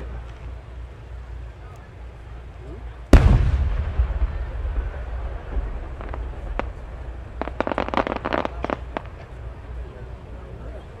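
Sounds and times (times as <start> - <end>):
small firework pops: 3.2 - 9.4.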